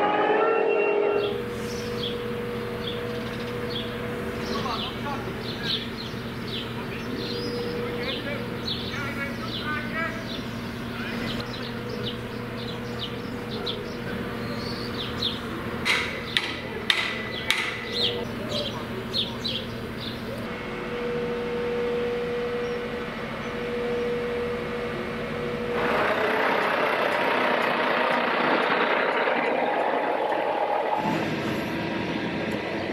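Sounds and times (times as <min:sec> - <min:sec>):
crane engine running: 0:00.0 - 0:32.9
birds chirping: 0:01.0 - 0:20.5
steady whine: 0:19.8 - 0:32.9.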